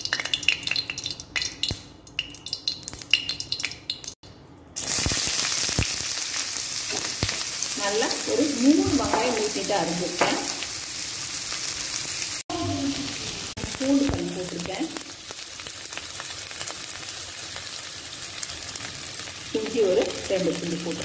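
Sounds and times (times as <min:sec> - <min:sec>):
hot oil popping and crackling: 0:00.0 - 0:04.2, 0:04.8 - 0:12.5, 0:13.5 - 0:21.0
onions sizzling in oil: 0:04.8 - 0:21.0.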